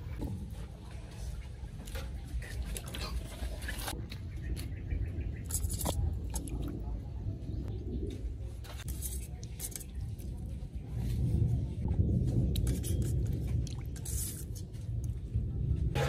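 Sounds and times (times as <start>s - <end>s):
water dripping: 12.5s - 15.2s.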